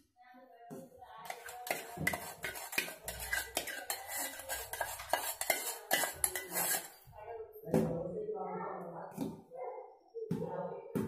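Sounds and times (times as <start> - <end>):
spoon scraping steel pan: 1.2 - 7.2.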